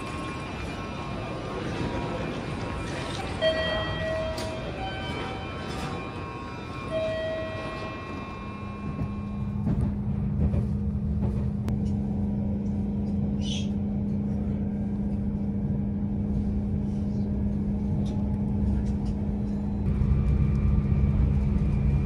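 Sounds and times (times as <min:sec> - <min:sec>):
constant low hum: 0:00.0 - 0:22.0
train rumbling at speed: 0:00.0 - 0:22.0.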